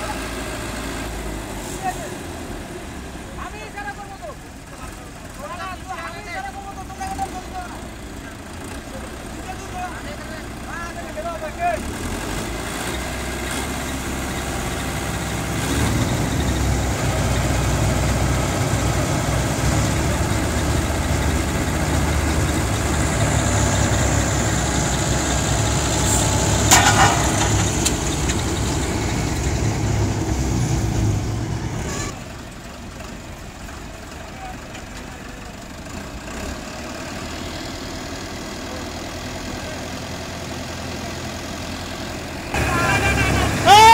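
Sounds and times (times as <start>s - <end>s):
diesel engine revving: 0.0s - 43.9s
sharp metallic clank: 26.0s - 28.4s.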